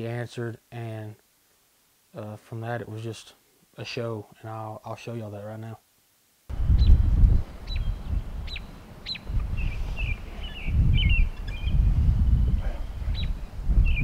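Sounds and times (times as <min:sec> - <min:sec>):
wind buffeting microphone: 0:06.5 - 0:14.0
small birds calling: 0:06.7 - 0:14.0.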